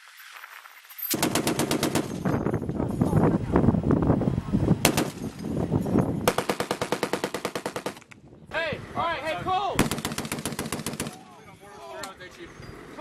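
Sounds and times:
machine gun automatic bursts: 0:01.2 - 0:02.3, 0:04.8 - 0:05.2, 0:06.3 - 0:08.0, 0:09.8 - 0:11.3.

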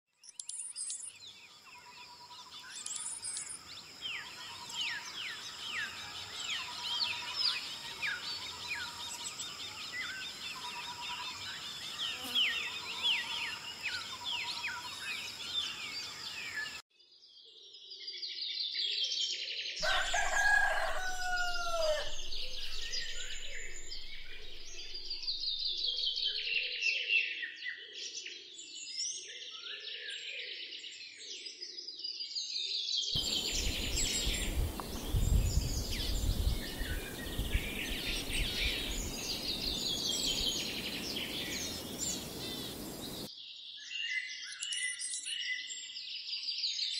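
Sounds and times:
loud falling crowing call: 0:19.8 - 0:25.9, 0:33.2 - 0:43.3
birds chirping and whistling: 0:19.8 - 0:26.6, 0:33.2 - 0:43.3.

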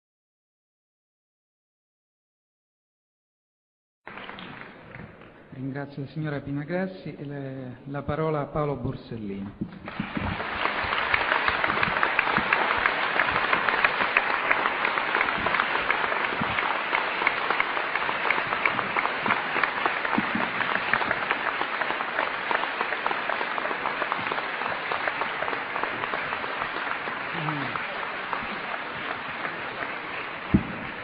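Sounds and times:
audience applauding: 0:04.1 - 0:05.4, 0:09.8 - 0:31.0.

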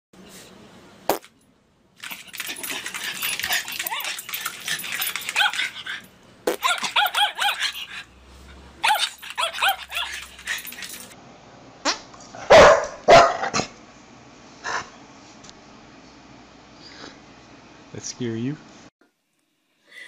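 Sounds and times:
small dog yapping: 0:03.2 - 0:08.0, 0:08.8 - 0:10.9.

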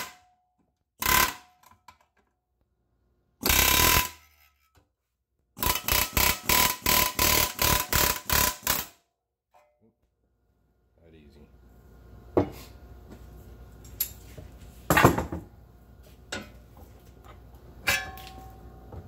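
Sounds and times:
pneumatic air hammer bursts: 0:01.0 - 0:01.5, 0:03.4 - 0:04.3, 0:05.6 - 0:09.0.

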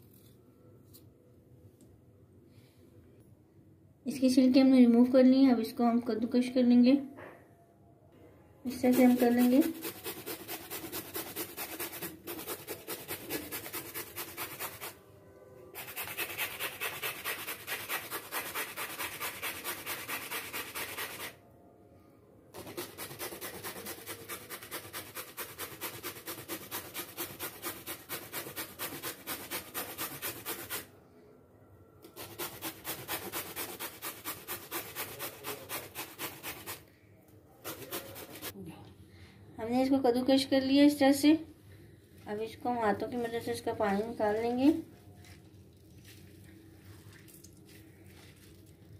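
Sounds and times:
gourd being grated: 0:37.6 - 0:38.5.

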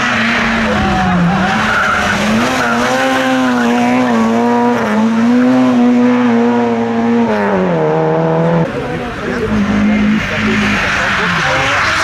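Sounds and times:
tyre squeal: 0:00.0 - 0:04.1
rally car engine revving hard: 0:00.0 - 0:12.0.

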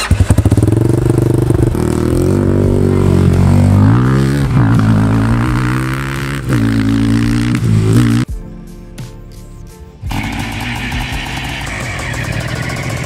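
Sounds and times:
engine running and revving: 0:00.0 - 0:08.3, 0:10.0 - 0:13.0.

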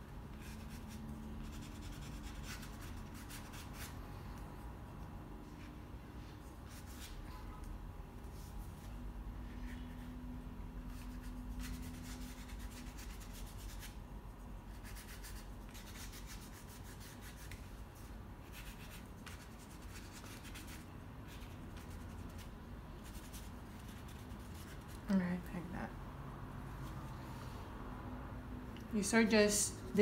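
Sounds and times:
paintbrush brushing on paper: 0:00.3 - 0:04.4, 0:05.4 - 0:07.3, 0:10.9 - 0:25.1.

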